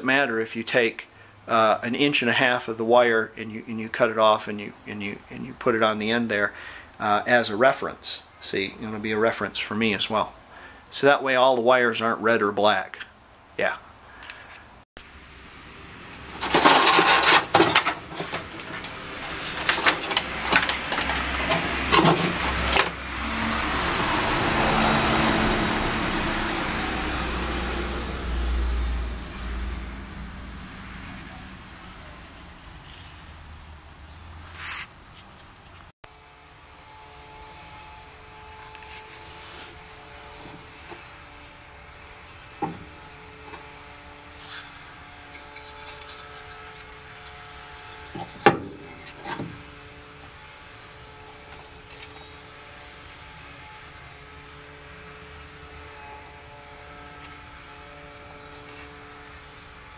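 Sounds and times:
cable rustling against sheet metal: 15.9s - 24.4s, 37.8s - 52.2s
sharp knocks and scrapes: 16.0s - 23.9s, 37.6s - 52.4s.

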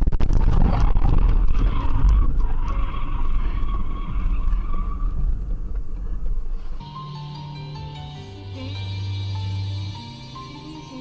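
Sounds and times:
loud road rumble: 0.0s - 11.0s
car tyres squealing: 0.3s - 6.8s.

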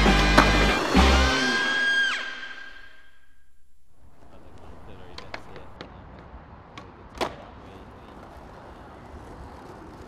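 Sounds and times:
skateboard loud clack: 0.1s - 1.0s, 5.0s - 10.0s
skateboard rolling rumble: 4.0s - 10.0s
skateboard clicks and knocks: 4.2s - 10.0s.

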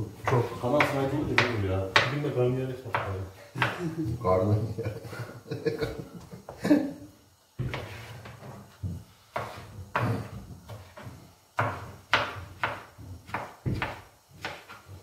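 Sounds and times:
knife chopping on wooden board: 0.2s - 2.2s, 2.9s - 3.8s, 7.6s - 8.5s, 9.3s - 15.0s.

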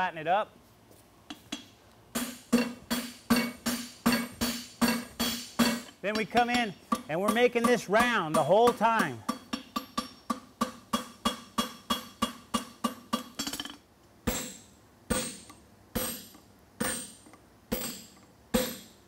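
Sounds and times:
hammer striking steel on anvil: 1.3s - 19.0s.

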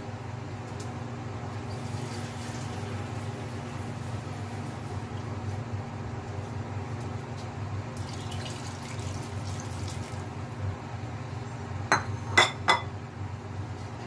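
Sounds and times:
water pouring into a pot: 1.6s - 3.4s, 8.0s - 10.5s.

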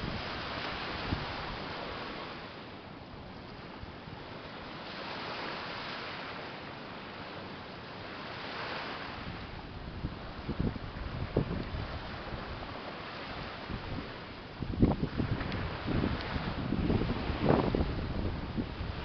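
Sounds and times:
small waves on sandy beach: 0.0s - 19.0s.

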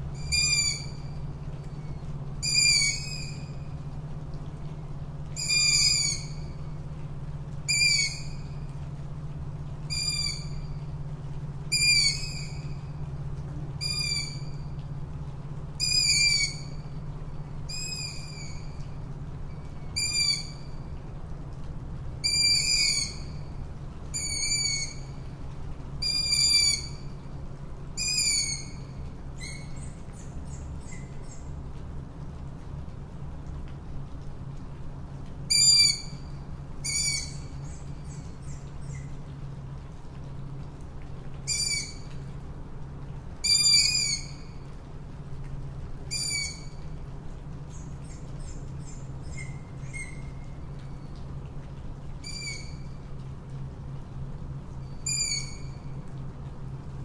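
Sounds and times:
steady low hum: 0.0s - 43.4s
owl calling: 0.2s - 1.1s, 2.4s - 3.5s, 5.4s - 6.5s, 7.7s - 8.5s, 11.7s - 12.8s, 15.8s - 16.8s, 20.0s - 20.7s, 22.2s - 23.4s, 24.1s - 25.1s, 26.0s - 27.0s, 28.0s - 29.9s, 35.5s - 36.2s, 36.8s - 39.1s, 41.5s - 42.1s, 43.4s - 44.6s, 46.1s - 46.8s, 52.2s - 52.9s, 55.0s - 55.8s.

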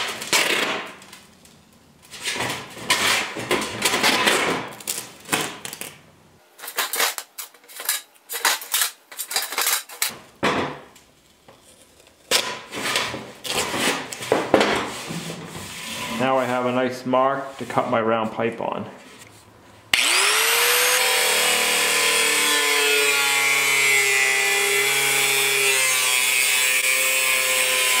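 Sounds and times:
tape rustling: 0.0s - 10.1s
metal pipe scraping on counter: 14.9s - 16.5s.

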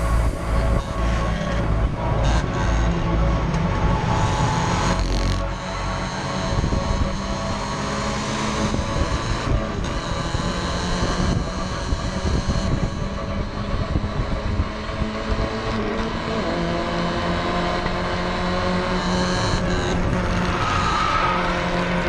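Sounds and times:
race car engine running hard: 0.0s - 22.0s.

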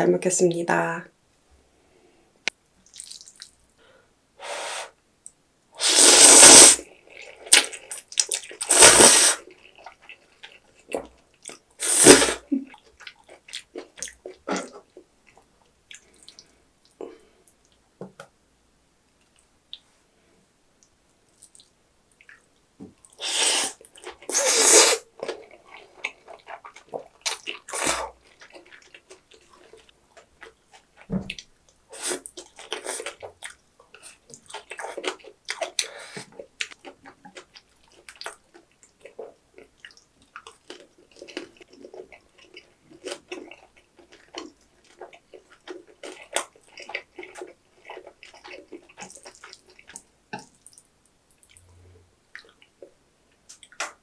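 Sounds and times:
noodle slurping: 5.8s - 10.0s, 23.2s - 25.4s
wet chewing: 7.1s - 11.8s, 25.1s - 51.7s.

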